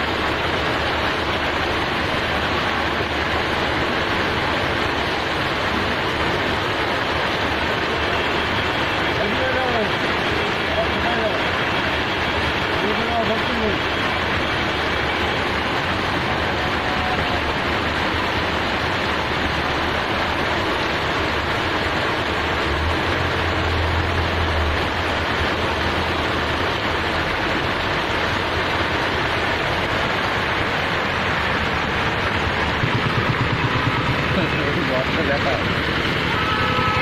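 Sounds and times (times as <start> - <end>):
heavy rain pouring: 0.0 - 37.0.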